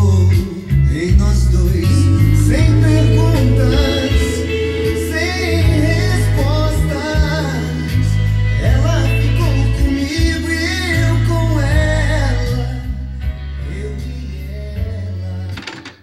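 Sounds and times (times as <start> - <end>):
song with singing over bass: 0.0 - 16.0.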